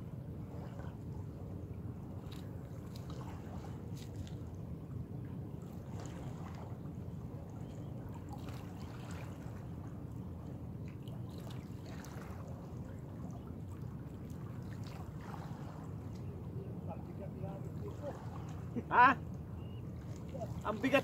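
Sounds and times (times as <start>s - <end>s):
faint splashes: 0.4s - 21.0s
small waves lapping on rocks: 5.6s - 7.0s, 8.1s - 9.8s, 10.9s - 16.2s, 17.4s - 19.3s.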